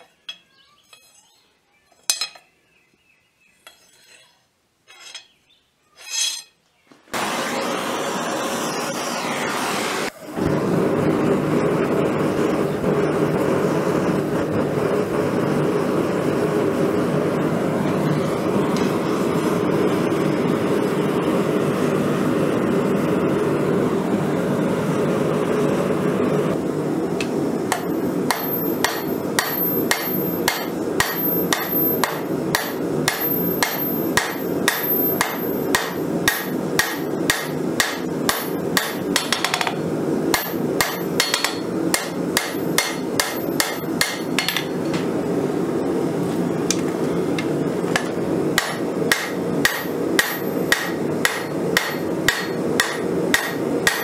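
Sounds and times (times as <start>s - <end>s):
hammer ringing on anvil: 27.7s - 44.8s, 48.0s - 54.0s.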